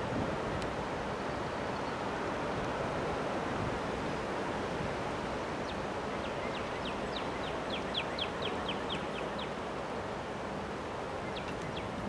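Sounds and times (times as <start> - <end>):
strong wind through trees: 0.0 - 12.0.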